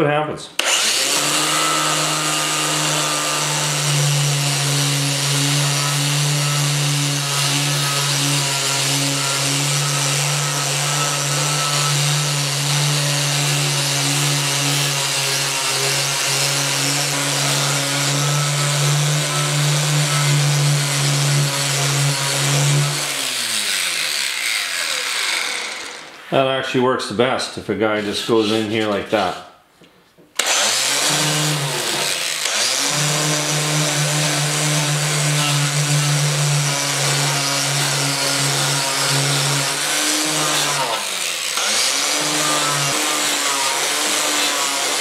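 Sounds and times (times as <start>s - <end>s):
angle grinder pad scrubbing metal: 0.6s - 26.3s, 28.0s - 29.4s, 30.4s - 45.0s.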